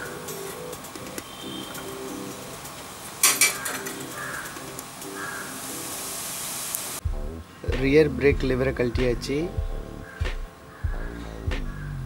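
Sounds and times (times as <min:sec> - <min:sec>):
pigeons cooing: 0:00.0 - 0:06.0
metallic clink: 0:03.2 - 0:04.1.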